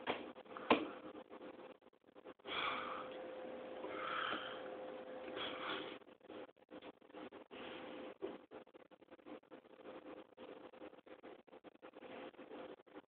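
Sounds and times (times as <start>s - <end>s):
faint steady hum: 0.0s - 13.0s
person breathing hissing: 2.4s - 3.1s, 3.8s - 4.7s, 5.3s - 6.0s.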